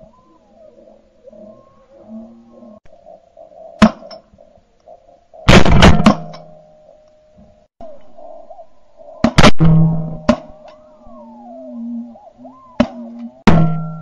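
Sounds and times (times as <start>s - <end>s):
faint bird calls: 0.0s - 5.6s, 6.5s - 9.4s, 10.2s - 14.0s
shotgun firing: 5.5s - 6.4s, 9.2s - 10.5s.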